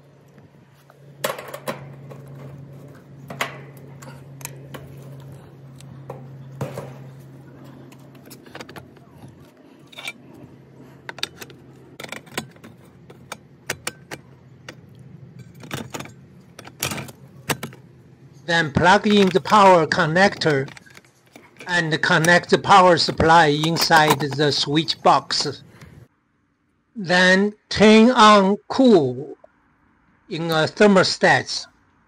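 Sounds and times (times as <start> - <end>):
low steady hum: 0.0 - 32.0
metallic clicks and clatter: 1.2 - 17.9, 18.8 - 24.6.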